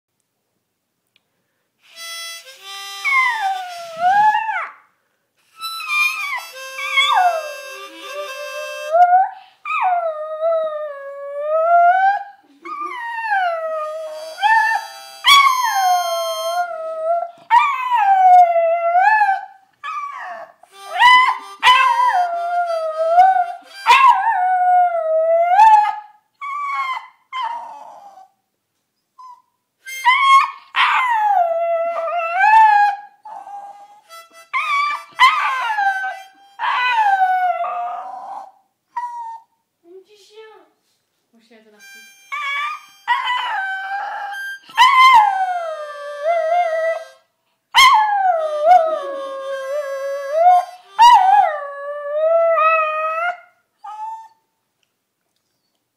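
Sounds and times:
harmonica chords: 1.8s - 4.3s, 5.4s - 9.1s, 13.6s - 17.0s, 20.6s - 24.4s, 29.8s - 30.4s, 33.8s - 37.4s, 41.6s - 47.4s, 48.3s - 52.0s
dog howling: 34.6s - 38.6s.

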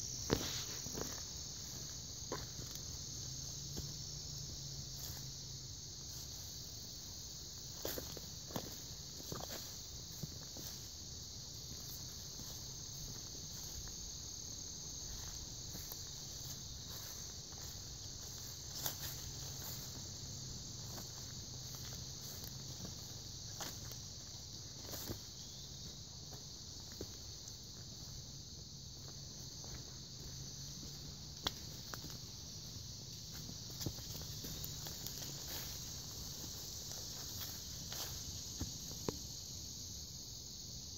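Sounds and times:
insects singing: 0.0s - 40.9s
footsteps through undergrowth: 0.2s - 39.5s.

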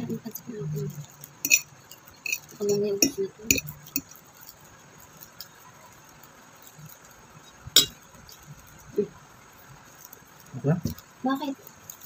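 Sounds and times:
utensil clinking against tableware: 1.4s - 4.1s, 7.8s - 8.0s.

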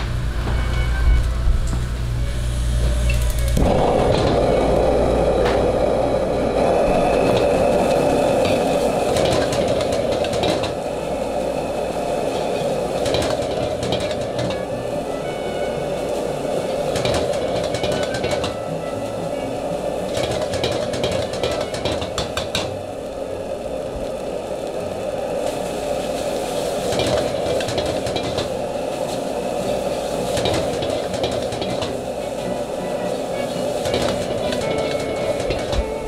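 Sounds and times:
gas burner running: 1.2s - 36.0s
spatula scraping and clanking wok: 30.2s - 32.0s.

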